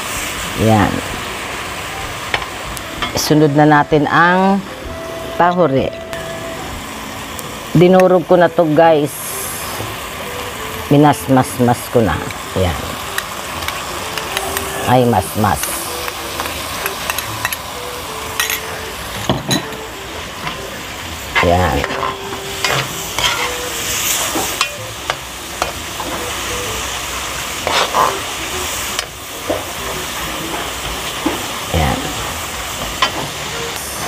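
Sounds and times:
sizzling in a metal wok: 0.0s - 34.0s
metal spatula scraping pan: 21.8s - 24.7s.

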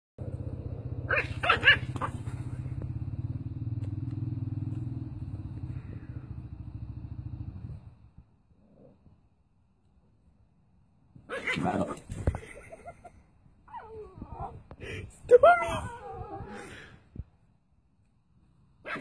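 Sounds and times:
steady low rumble: 0.2s - 9.2s
puppy yapping: 1.1s - 2.3s.

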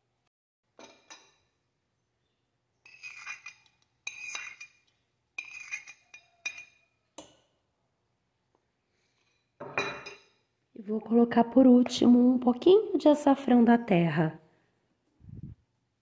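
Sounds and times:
metal spoon scraping porcelain plate: 2.8s - 6.9s.

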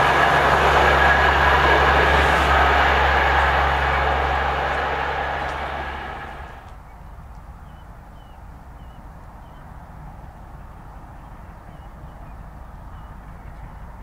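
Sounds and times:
low steady rumble: 0.0s - 6.8s.

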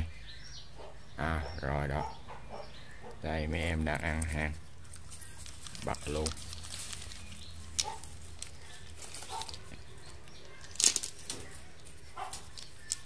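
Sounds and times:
hand rustling dry leaves: 3.6s - 13.0s
snail shells clicking: 3.8s - 13.0s.

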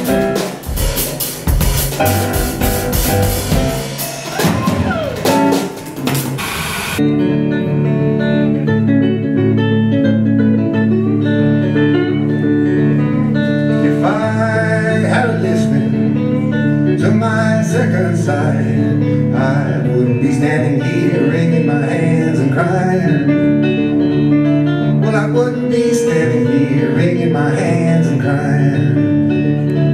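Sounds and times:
drum kit and cymbals: 0.0s - 7.0s
guitar chords: 0.0s - 29.9s
man singing: 13.2s - 24.0s, 24.8s - 29.9s.

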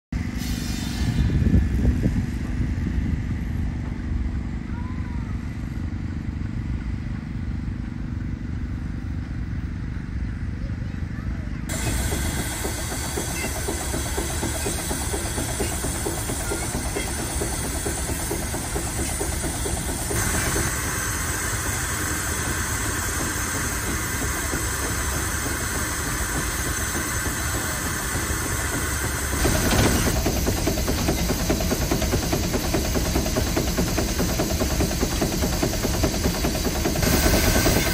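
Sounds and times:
steam hiss: 0.2s - 1.4s, 11.7s - 37.9s
steam engine running: 0.2s - 37.9s.

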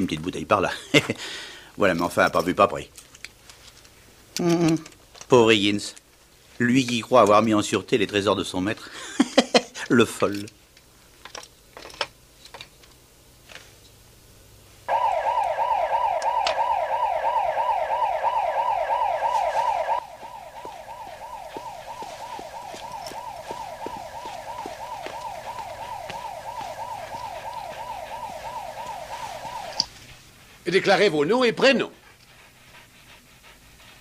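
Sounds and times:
intruder alarm whooping: 14.9s - 29.9s.

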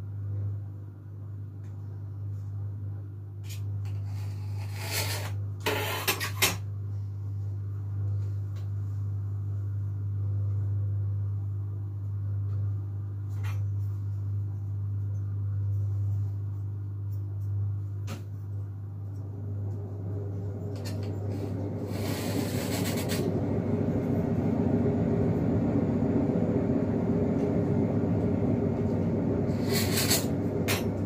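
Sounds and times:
steady low hum: 0.0s - 31.0s
knife scraping on countertop: 3.5s - 6.6s, 21.9s - 23.3s, 29.5s - 30.4s.

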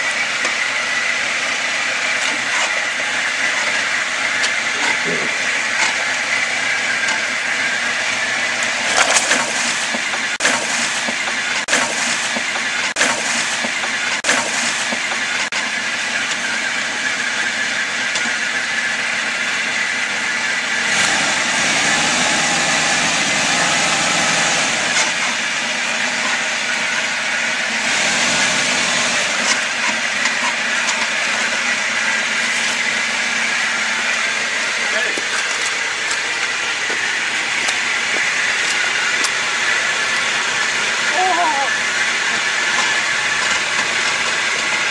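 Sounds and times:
vehicle engine running: 0.0s - 44.9s
sharp cracks: 8.9s - 15.6s.

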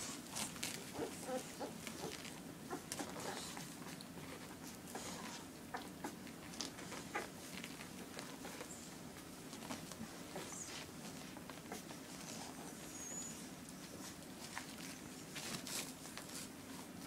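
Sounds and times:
puppies suckling clicks: 0.3s - 16.5s
puppies high squeaks: 12.2s - 14.2s.

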